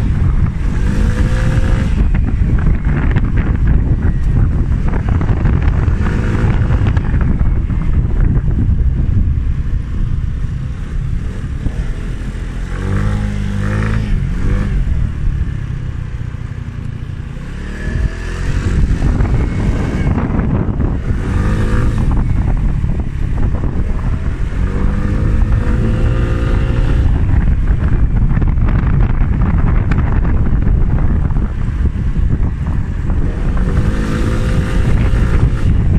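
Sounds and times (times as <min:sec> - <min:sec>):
scooter engine accelerating: 0:00.0 - 0:35.9
wind rumbling on microphone: 0:00.0 - 0:35.9.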